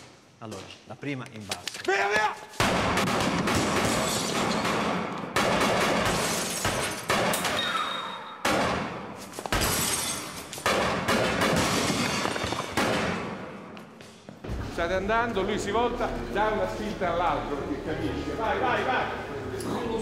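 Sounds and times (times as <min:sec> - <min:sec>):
glass shattering and tinkling: 0:09.7 - 0:10.6.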